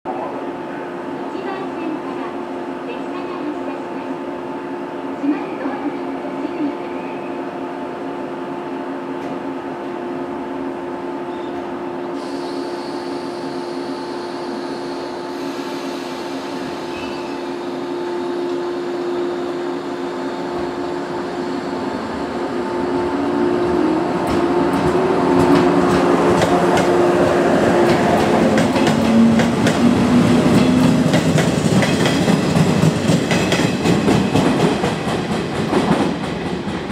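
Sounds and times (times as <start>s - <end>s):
train equipment hum: 7.6s - 36.9s.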